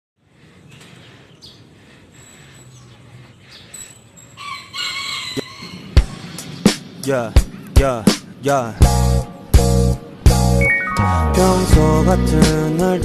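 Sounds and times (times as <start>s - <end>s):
faint outdoor background: 0.2s - 13.0s
rooster crowing: 4.4s - 6.0s
high bird chirps: 10.6s - 11.3s.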